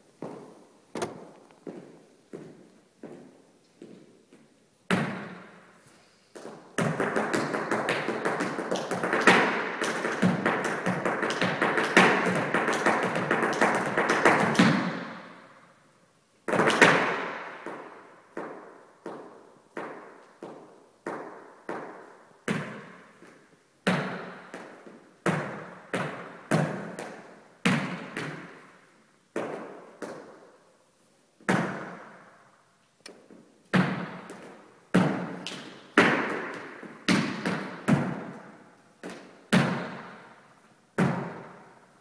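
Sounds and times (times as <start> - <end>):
flamenco shoes stamping on floor: 6.4 - 15.1, 33.7 - 38.3.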